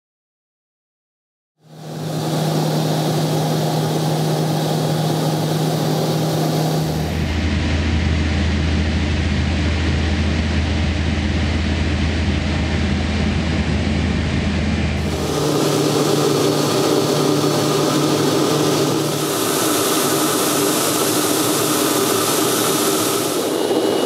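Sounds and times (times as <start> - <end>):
propeller engine droning: 1.6 - 24.0
hiss: 19.0 - 24.0.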